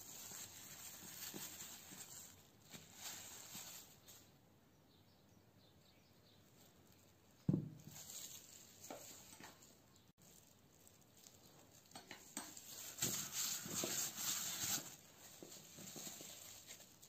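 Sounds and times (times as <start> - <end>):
plastic glove rustling: 0.0 - 4.4, 6.5 - 17.0
glass bowl thudding on table: 7.5 - 7.8.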